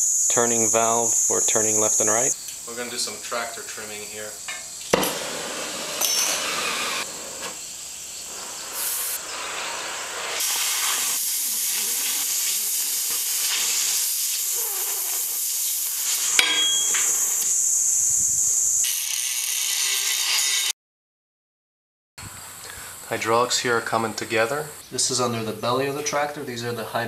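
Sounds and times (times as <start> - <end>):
cutting torch hissing: 0.0 - 20.7
sharp pop: 4.9 - 5.3.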